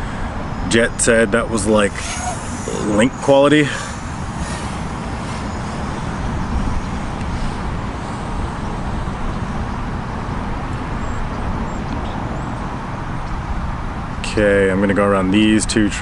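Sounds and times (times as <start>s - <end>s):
low fluctuating rumble: 1.6s - 10.6s
hiss: 1.9s - 6.0s.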